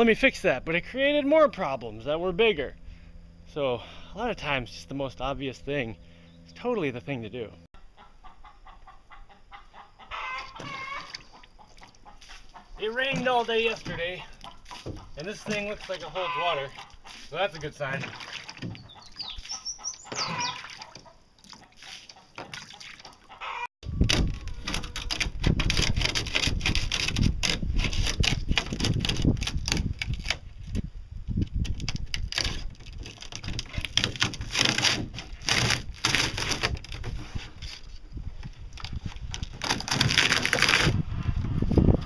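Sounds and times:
rooster crowing: 10.1 - 11.1, 23.4 - 24.9
rumbling and scraping with knocks: 10.5 - 20.5, 23.8 - 42.0.

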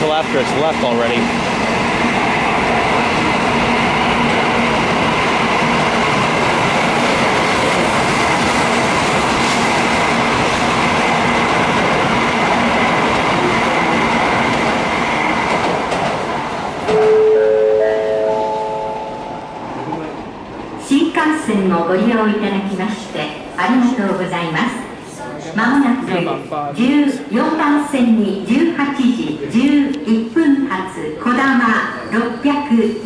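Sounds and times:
train accelerating: 0.0 - 25.2
platform chime: 16.9 - 19.7.

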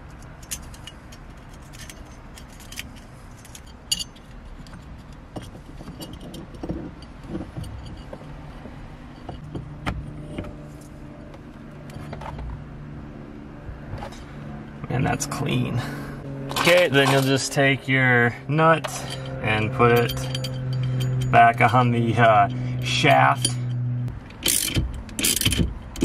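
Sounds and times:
metal hub and connectors clicking: 0.0 - 10.5, 18.8 - 26.0
low steady hum: 0.0 - 26.0.

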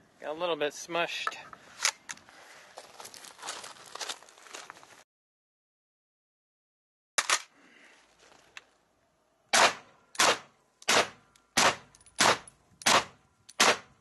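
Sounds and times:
sharp crack: 9.5 - 13.9
suppressed rifle shots: 9.6 - 13.9.

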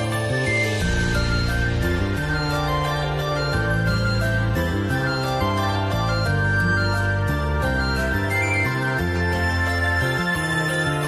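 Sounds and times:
instrumental background music: 0.0 - 11.0.

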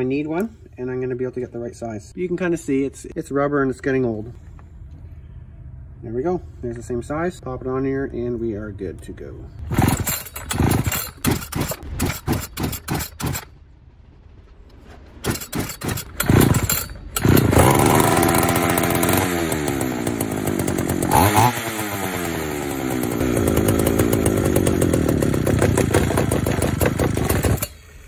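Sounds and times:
chainsaw engine sputtering and running: 9.6 - 13.5, 15.2 - 27.8.

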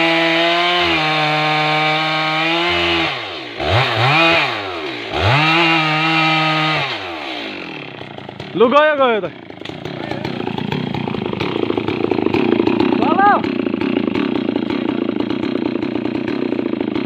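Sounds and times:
chainsaw cutting tree trunk: 0.0 - 17.0.

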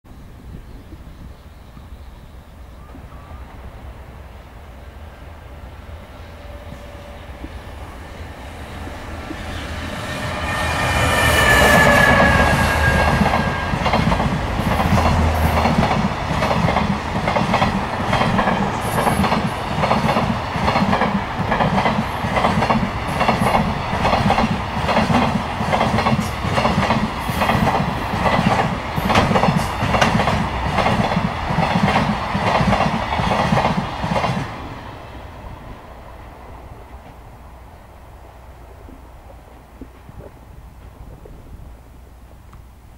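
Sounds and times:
locomotive whine: 2.5 - 19.9
wheels clacking over rail joints: 6.7 - 34.6.

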